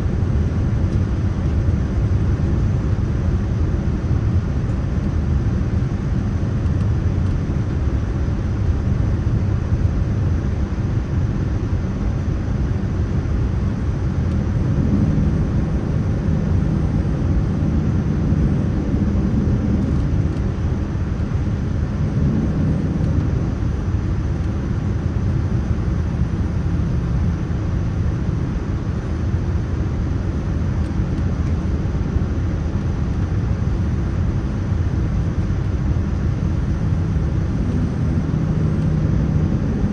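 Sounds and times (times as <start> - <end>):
jet engine rumble: 0.0 - 39.9.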